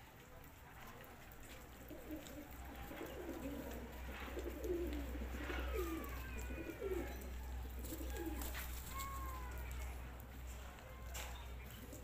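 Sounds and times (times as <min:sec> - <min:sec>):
pigeons cooing: 0:01.8 - 0:09.1, 0:11.7 - 0:12.0.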